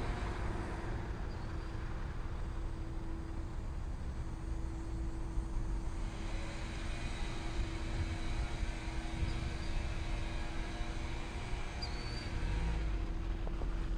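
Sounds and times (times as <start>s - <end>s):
constant hum: 0.0s - 13.9s
distant vehicles rumbling: 0.0s - 13.9s
wind buffeting microphone: 7.6s - 11.6s.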